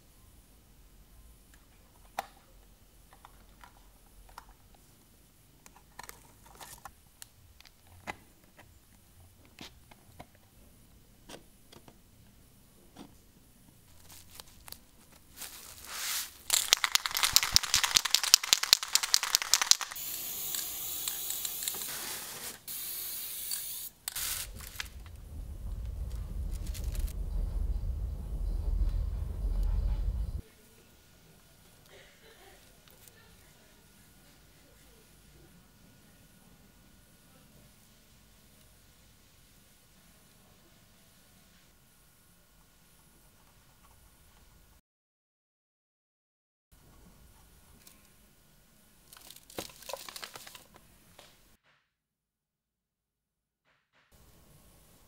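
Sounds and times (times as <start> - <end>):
steady hiss: 10.6 - 31.8
masking tape tearing: 15.5 - 22.6.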